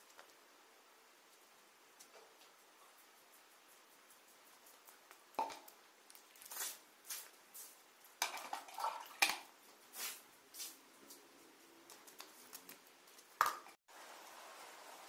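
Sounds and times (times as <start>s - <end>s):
swishing and scuffing: 6.4s - 7.8s, 9.8s - 11.3s.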